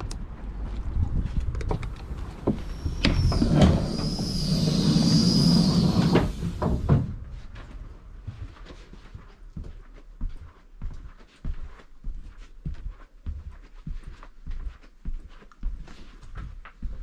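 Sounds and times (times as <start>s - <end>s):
door clunks: 1.7s - 7.2s
door motor whining: 1.8s - 7.1s.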